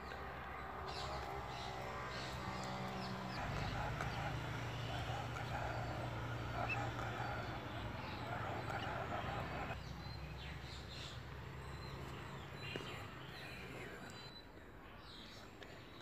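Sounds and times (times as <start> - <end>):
mid-pitched murmur: 0.0 - 10.7.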